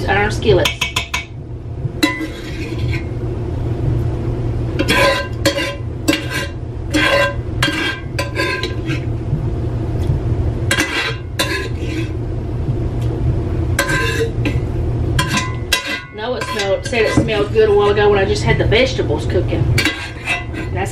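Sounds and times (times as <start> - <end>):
steady low hum: 0.0 - 20.9
spoon clanking on cast iron skillet: 0.6 - 1.4, 4.8 - 9.0, 10.7 - 12.0, 13.8 - 14.6, 15.2 - 18.0, 19.8 - 20.7.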